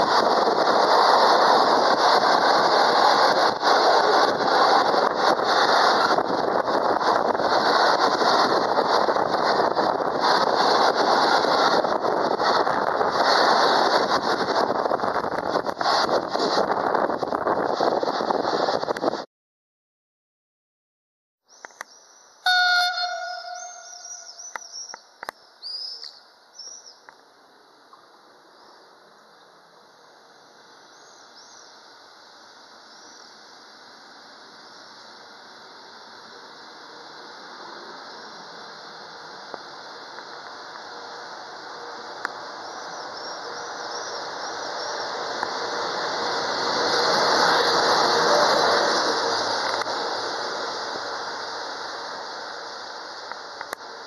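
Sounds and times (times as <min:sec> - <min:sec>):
freight train passing: 0:00.0 - 0:19.2, 0:22.0 - 0:54.0
birds chirping: 0:21.5 - 0:27.0.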